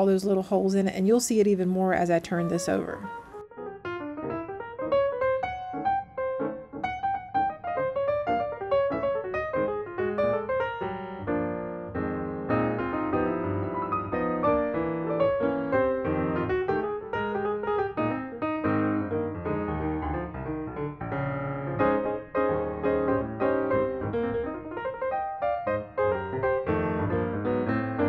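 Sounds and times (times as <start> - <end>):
piano music: 0.0 - 28.0.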